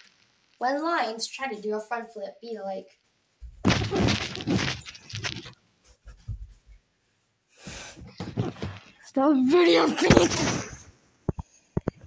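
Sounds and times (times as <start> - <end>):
rustling: 3.4 - 6.9, 8.0 - 9.1
boy imitating lion roar: 9.5 - 10.3.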